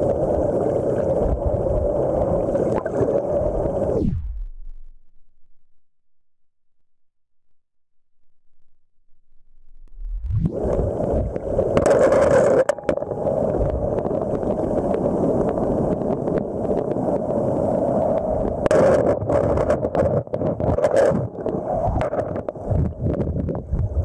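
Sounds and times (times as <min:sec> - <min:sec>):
muffled flowing water: 0:00.0 - 0:04.9, 0:09.8 - 0:24.0.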